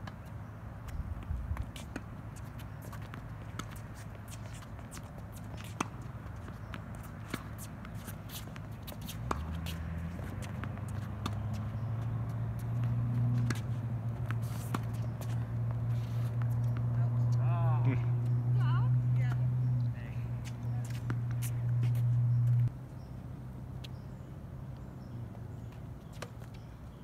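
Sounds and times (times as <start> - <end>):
shoes scuffing on hard court: 1.2 - 17.4, 20.4 - 22.7.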